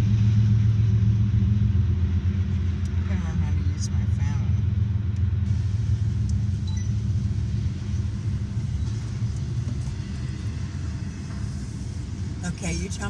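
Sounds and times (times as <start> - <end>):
car cabin rumble: 2.8 - 13.0.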